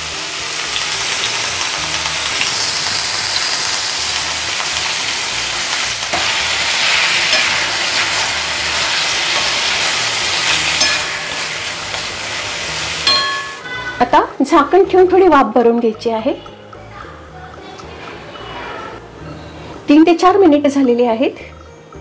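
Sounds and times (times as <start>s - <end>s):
potato sticks sizzling in oil: 0.0s - 15.8s
spatula scraping a pan: 6.1s - 13.0s.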